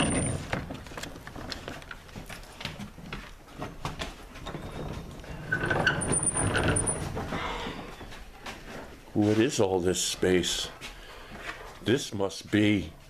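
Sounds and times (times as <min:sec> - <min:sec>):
footsteps and scuffs: 0:07.1 - 0:13.0.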